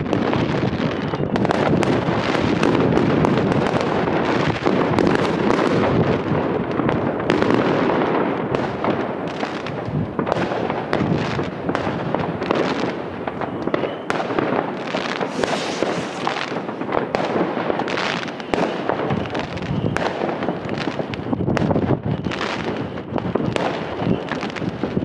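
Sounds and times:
fireworks crackling and banging: 0:00.0 - 0:25.0.

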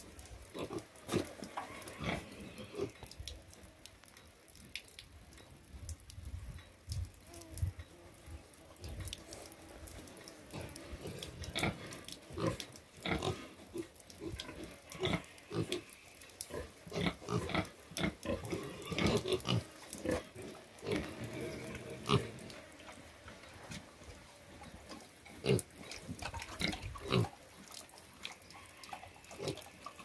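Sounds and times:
pigs grunting: 0:10.5 - 0:15.9.

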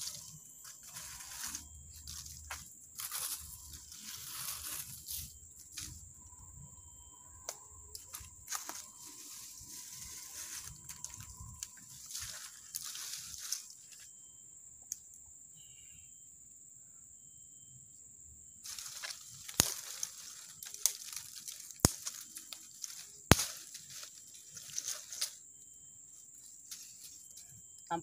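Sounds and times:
twigs and leaves rustling and crunching: 0:00.0 - 0:06.7, 0:07.4 - 0:14.1, 0:18.6 - 0:28.0
wood cracking: 0:18.7 - 0:25.4.

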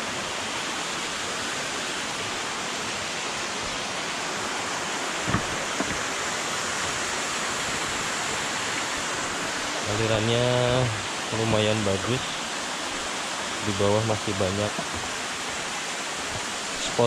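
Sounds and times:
waterfall rushing: 0:00.0 - 0:17.0
short knocks: 0:05.2 - 0:06.1.

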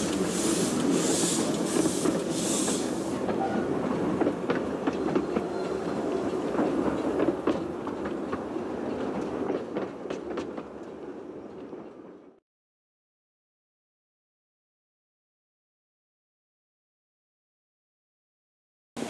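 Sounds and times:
steam train pulling away: 0:00.0 - 0:03.8.

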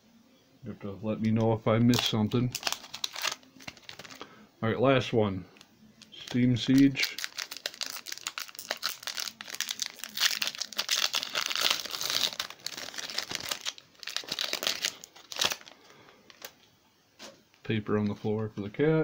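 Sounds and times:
foil wrapper crinkling and tearing: 0:01.8 - 0:04.2, 0:06.0 - 0:16.6.

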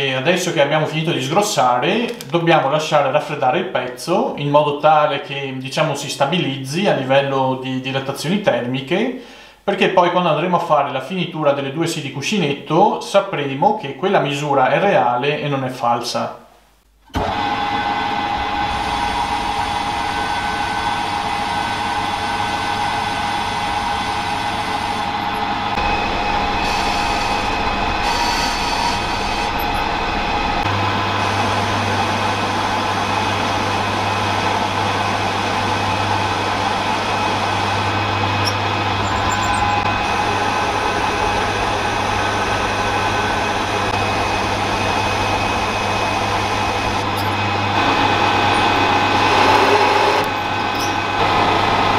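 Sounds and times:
metal lathe whining: 0:17.1 - 0:51.9
lathe cutting steel: 0:17.2 - 0:51.9.

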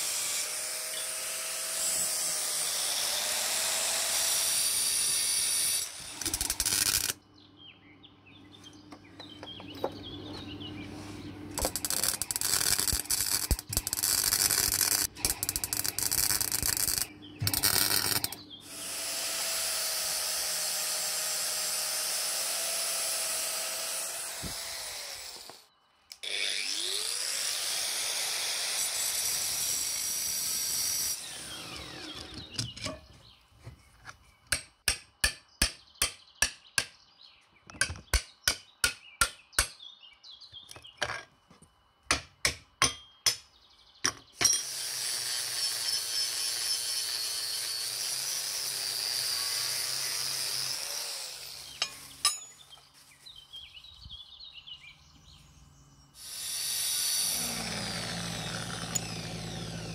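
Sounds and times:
angle grinder on steel: 0:00.0 - 0:07.2, 0:11.6 - 0:25.6, 0:26.2 - 0:33.0, 0:44.4 - 0:52.5, 0:56.2 - 0:59.9
hammer striking chisel on steel: 0:34.5 - 0:37.0, 0:42.1 - 0:43.5.

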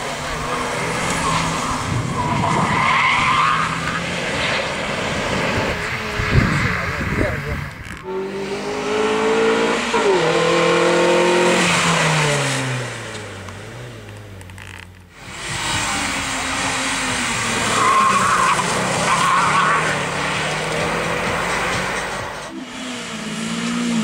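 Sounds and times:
racing car engine passing: 0:00.0 - 0:14.3, 0:15.2 - 0:24.0
tyres squealing: 0:16.0 - 0:22.5.

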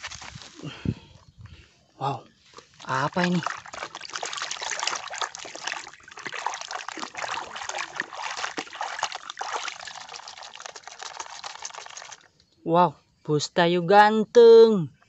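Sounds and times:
water splashing in a metal basin: 0:02.5 - 0:12.4.

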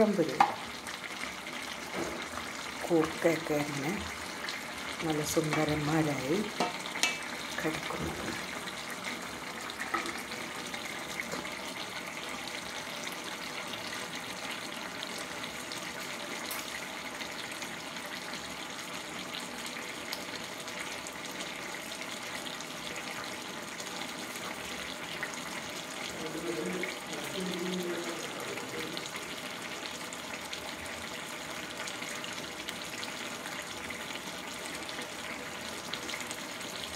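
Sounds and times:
curry bubbling in a pan: 0:00.0 - 0:36.9.

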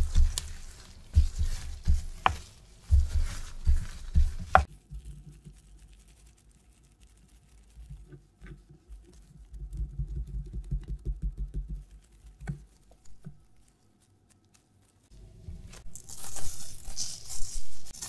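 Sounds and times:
soft pats on dough: 0:00.0 - 0:05.8, 0:07.8 - 0:13.4.

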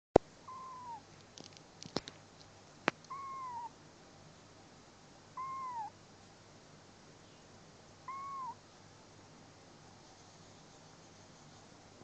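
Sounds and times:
kitten mewing: 0:00.5 - 0:01.0, 0:03.1 - 0:03.7, 0:05.4 - 0:05.9, 0:08.1 - 0:08.6.

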